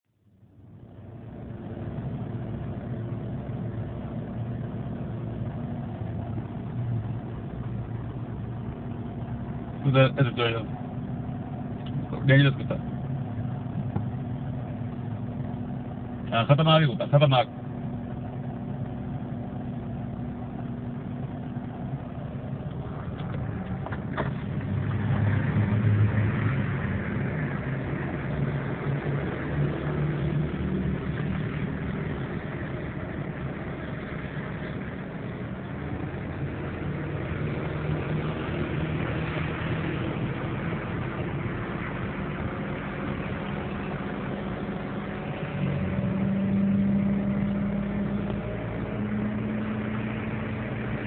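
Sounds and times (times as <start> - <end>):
car engine hum from inside cabin: 0.2 - 51.0.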